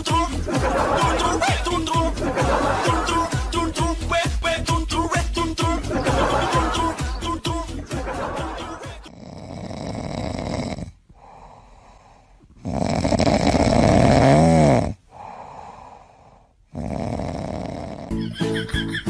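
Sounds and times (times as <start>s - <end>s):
kitten snoring: 9.1s - 18.1s.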